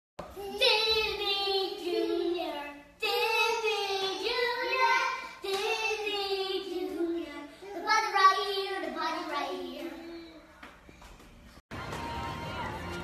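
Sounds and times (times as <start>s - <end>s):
child singing: 0.4s - 10.4s.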